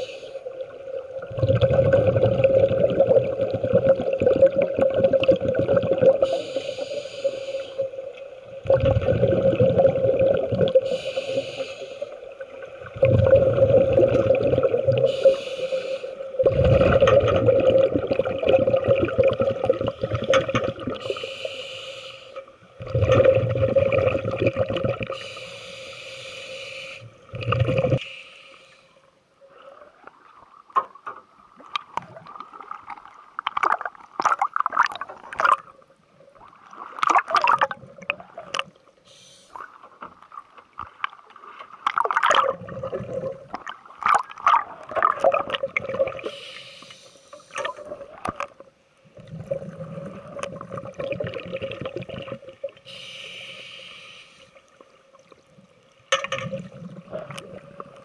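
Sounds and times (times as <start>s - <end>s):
bubbling regulator exhalations: 1.2s - 6.4s, 8.6s - 11.1s, 12.9s - 15.4s, 16.4s - 21.2s, 22.8s - 25.3s, 27.3s - 28.0s
hissing regulator inhalation: 6.2s - 8.0s, 10.8s - 12.2s, 15.0s - 16.3s, 21.0s - 22.5s, 25.1s - 27.1s, 46.2s - 47.8s, 52.9s - 54.6s.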